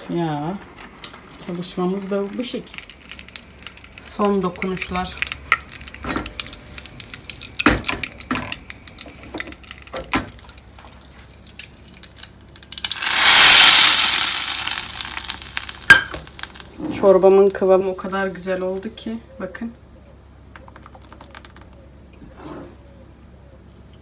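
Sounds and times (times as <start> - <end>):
hot oil sizzling: 0.2 - 19.0
utensils clinking on pans: 15.9 - 16.3.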